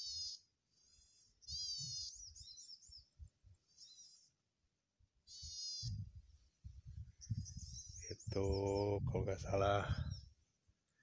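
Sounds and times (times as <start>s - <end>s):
bird buzzy high calls: 0.0s - 0.5s, 5.2s - 6.0s
bird warbling twitter: 0.0s - 0.5s, 1.2s - 3.1s, 5.3s - 6.1s
low microphone rumbles: 5.9s - 10.3s.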